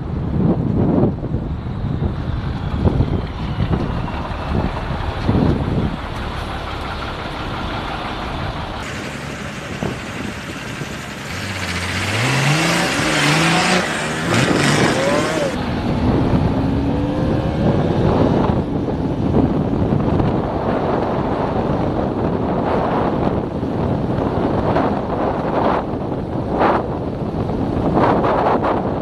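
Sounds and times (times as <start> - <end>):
wind on microphone: 0.0 - 29.0
motorcycle engine accelerating: 2.0 - 23.1.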